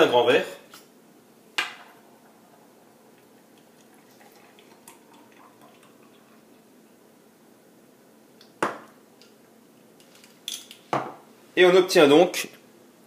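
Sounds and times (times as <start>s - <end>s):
liquid trickling into a glass: 2.2s - 6.7s.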